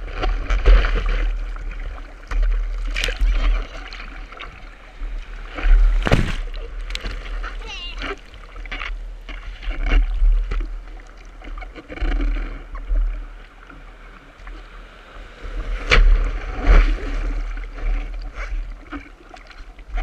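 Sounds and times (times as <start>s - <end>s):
deep water rumble on microphone: 0.0s - 20.0s
surf splashing against surfboard: 5.4s - 10.7s, 15.4s - 19.1s.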